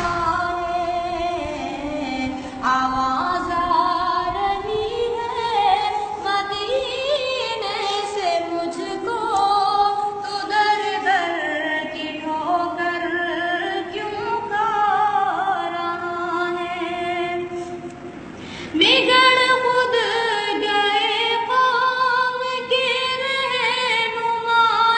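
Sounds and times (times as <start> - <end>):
person singing devotional song: 0.0 - 18.0, 18.6 - 24.9.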